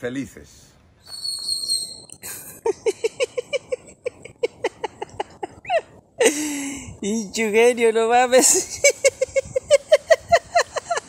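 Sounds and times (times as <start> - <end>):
spider monkey calling: 1.1 - 2.2.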